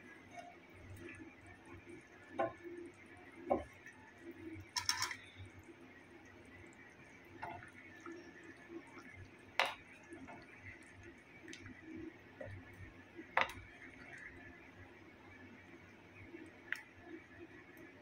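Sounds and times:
curry bubbling in a pot: 0.0 - 18.0
wooden spoon knocking pot: 2.4 - 2.6, 3.5 - 3.8.

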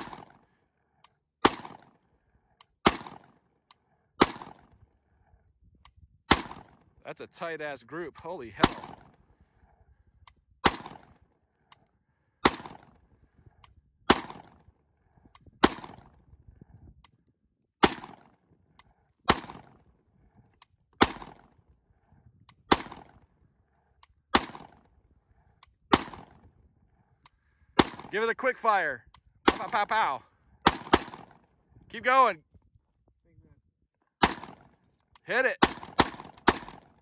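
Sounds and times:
rifle shots with echo: 0.0 - 0.6, 1.4 - 2.2, 2.8 - 3.5, 4.2 - 4.8, 6.2 - 7.0, 8.2 - 9.3, 10.6 - 11.4, 12.4 - 13.1, 14.1 - 14.8, 15.6 - 16.3, 17.8 - 18.4, 19.2 - 20.0, 21.0 - 21.6, 22.6 - 26.6, 27.7 - 28.5, 29.4 - 31.5, 34.2 - 37.0.

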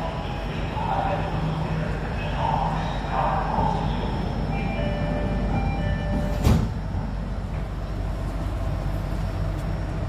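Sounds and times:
train car rumble: 0.0 - 10.0
door-closing chime beeps: 4.6 - 6.6
sliding doors thumping shut: 6.2 - 6.8.

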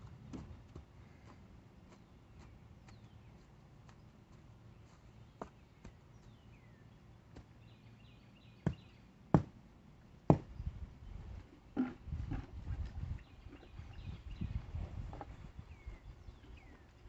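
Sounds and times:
sharp knocks on wood: 8.6 - 9.5, 10.3 - 10.5.

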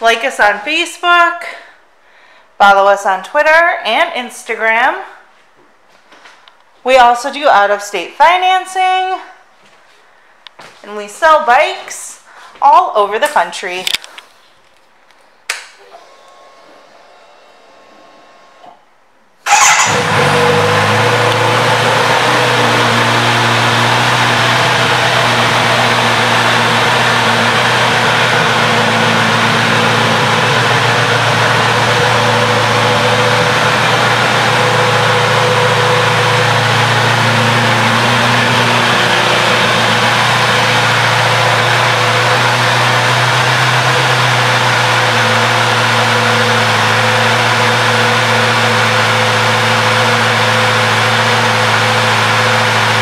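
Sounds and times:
motorcycle engine starting and idling: 19.4 - 53.0.

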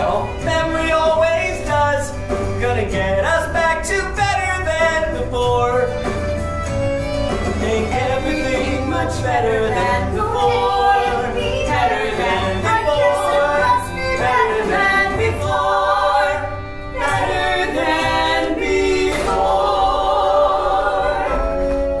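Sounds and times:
people singing in harmony: 0.0 - 6.2, 7.4 - 22.0.

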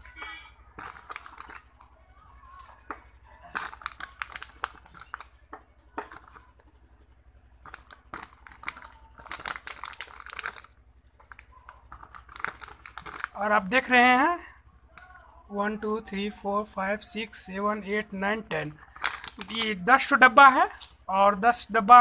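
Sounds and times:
plastic packaging crinkling: 0.0 - 13.9, 18.6 - 21.1
low steady hum: 0.0 - 22.0.

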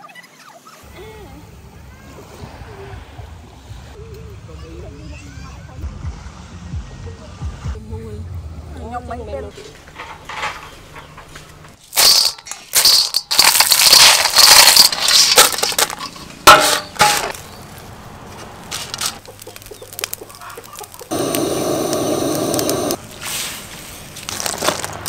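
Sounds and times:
clam shells clattering in pan: 11.8 - 17.6
steady sizzle: 19.2 - 24.9.

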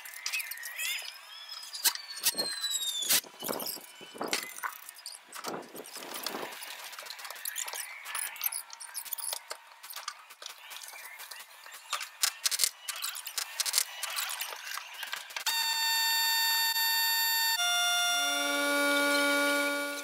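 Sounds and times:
high-pitched squeaks and chirps: 0.0 - 5.3.

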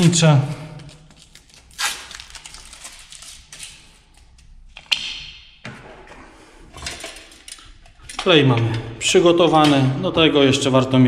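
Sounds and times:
tape ripping off wall: 1.1 - 3.9.

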